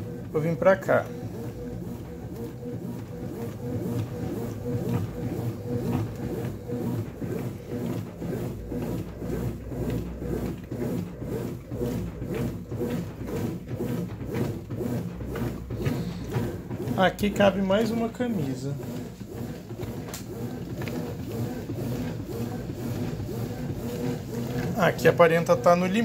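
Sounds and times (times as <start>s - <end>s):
washing machine motor hum: 0.0s - 26.0s
water and clothes churning: 0.0s - 26.0s.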